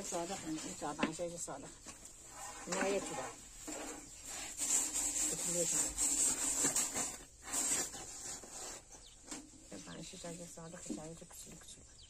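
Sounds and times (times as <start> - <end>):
broom sweeping metal griddle: 2.2 - 9.0.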